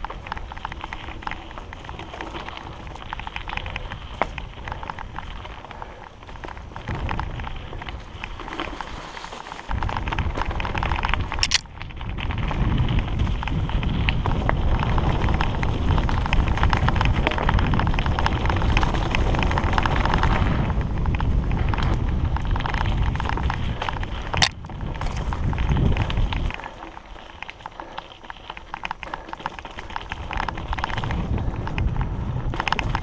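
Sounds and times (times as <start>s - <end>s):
bike rattling: 0.0s - 33.0s
bike tyres on dirt: 0.0s - 33.0s
wind on microphone: 9.7s - 33.0s.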